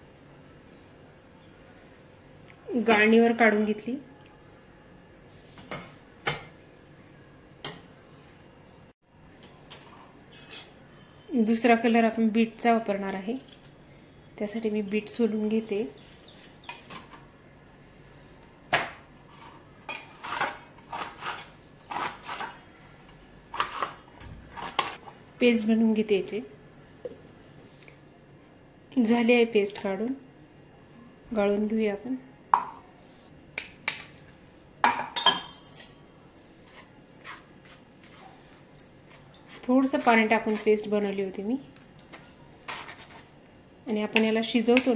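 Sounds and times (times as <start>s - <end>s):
steel utensils clinking: 10.3s - 10.8s
peeler scraping beetroot: 19.3s - 22.6s, 39.1s - 41.2s, 42.6s - 43.3s.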